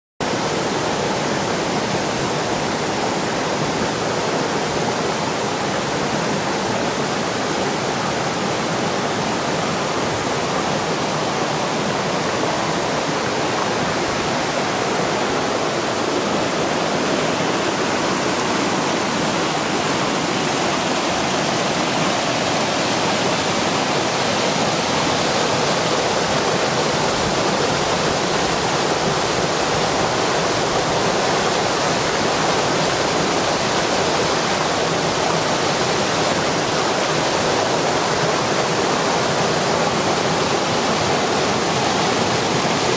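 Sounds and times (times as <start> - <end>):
waterfall rushing: 0.2 - 42.9.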